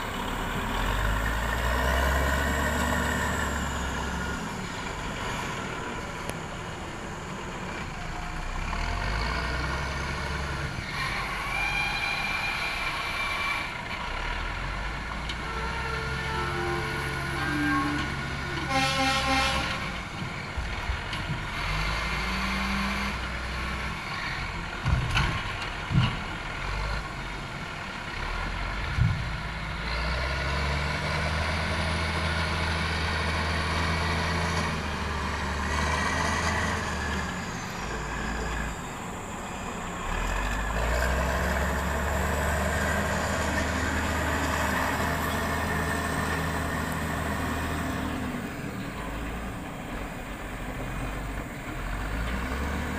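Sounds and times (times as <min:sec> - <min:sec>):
diesel engine revving: 0:00.0 - 0:52.9.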